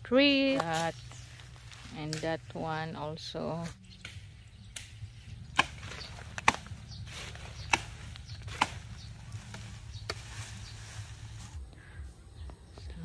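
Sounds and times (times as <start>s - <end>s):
machete chopping brush: 4.0s - 10.9s.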